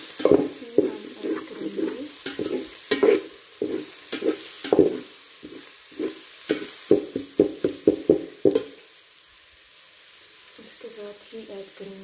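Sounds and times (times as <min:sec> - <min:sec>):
metal spatula scraping a pot: 0:00.0 - 0:07.2
onions sizzling in oil: 0:00.0 - 0:12.0.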